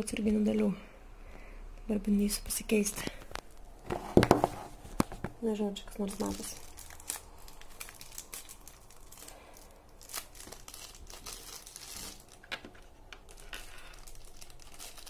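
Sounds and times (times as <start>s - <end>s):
plastic bag crinkling: 5.9s - 15.0s.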